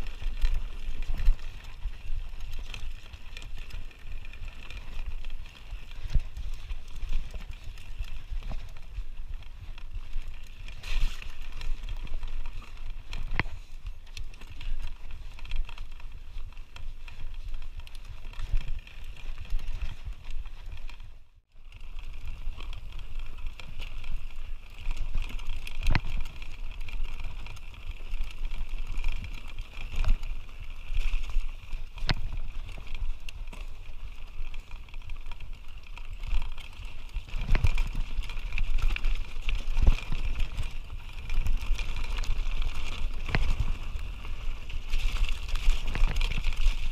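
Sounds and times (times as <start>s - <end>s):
bike rattling: 0.0s - 46.9s
bike tyres on trail: 0.0s - 46.9s
bike knocking over rocks: 30.9s - 46.9s.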